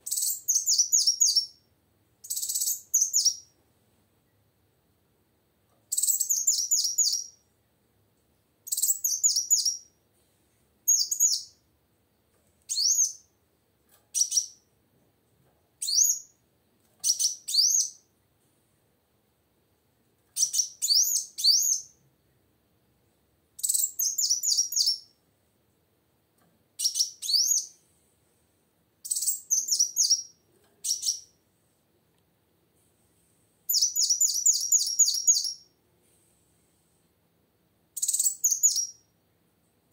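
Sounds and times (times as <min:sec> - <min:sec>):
bird twittering chirps: 0:00.1 - 0:01.6, 0:02.2 - 0:03.5, 0:05.9 - 0:07.4, 0:08.7 - 0:09.9, 0:10.9 - 0:11.5, 0:20.4 - 0:22.0, 0:23.6 - 0:25.1, 0:26.8 - 0:27.8, 0:29.0 - 0:31.3, 0:33.7 - 0:35.7, 0:38.0 - 0:39.0.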